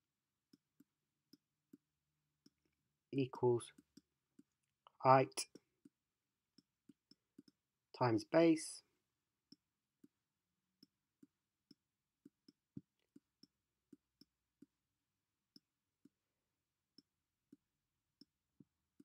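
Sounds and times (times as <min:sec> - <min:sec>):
stylus tapping graphics tablet: 0:05.5 - 0:07.6.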